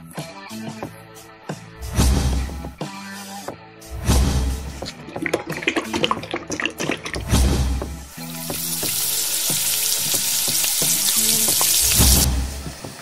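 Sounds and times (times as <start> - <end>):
background music with a beat: 0.0 - 13.0
deep-frying sizzle in hot oil: 8.1 - 13.0.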